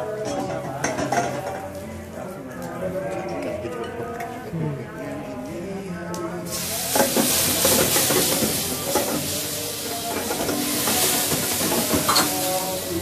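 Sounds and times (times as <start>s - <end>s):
food sizzling in a pan: 6.5s - 13.0s.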